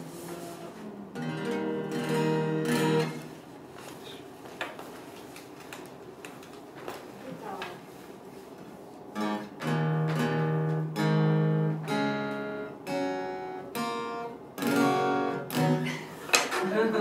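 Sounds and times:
acoustic guitar strumming chords: 0.0s - 3.3s, 9.1s - 17.0s.

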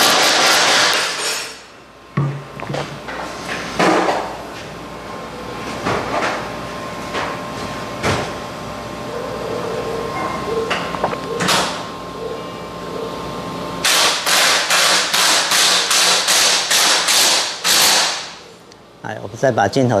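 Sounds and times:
pneumatic impact wrench bursts: 0.0s - 1.7s, 13.8s - 18.4s.

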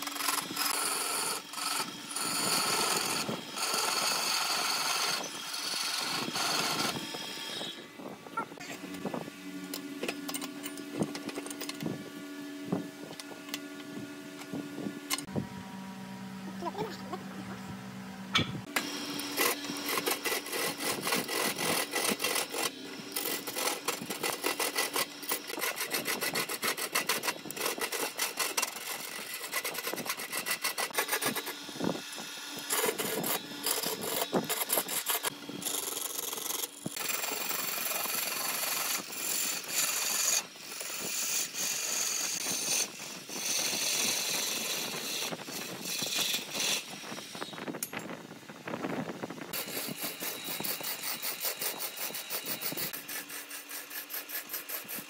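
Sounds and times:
gouge scraping spinning log: 0.0s - 9.2s, 18.6s - 47.8s, 48.7s - 55.0s.

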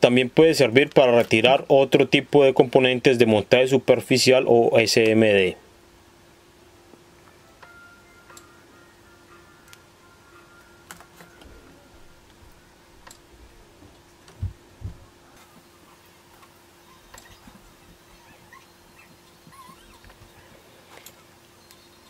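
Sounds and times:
faint steady hum: 0.0s - 22.0s
dull thumps: 13.7s - 15.2s.

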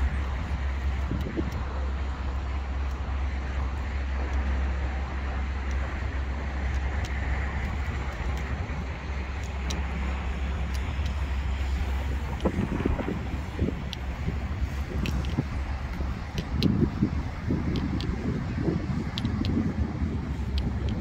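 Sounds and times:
city traffic rumble: 0.0s - 21.0s
wind on microphone: 0.0s - 21.0s.

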